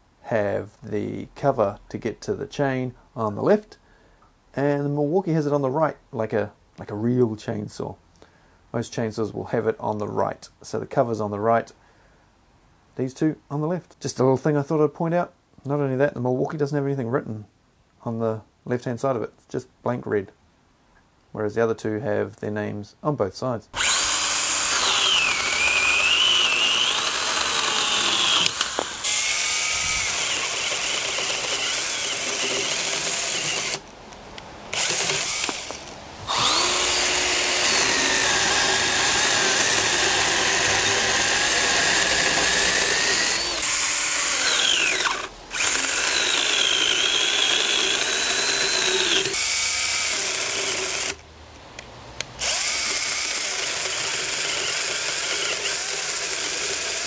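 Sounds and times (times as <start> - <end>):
chainsaw cutting branch: 23.8 - 33.9, 34.7 - 51.2, 52.3 - 57.0.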